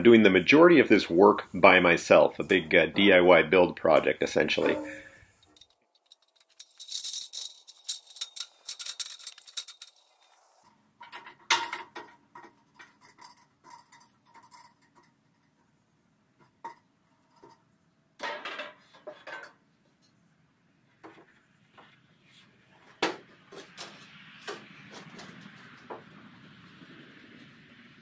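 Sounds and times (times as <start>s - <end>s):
metal sheet clinking and rattling: 4.4s - 15.2s, 18.2s - 19.6s
sharp metal clank: 4.6s - 5.6s.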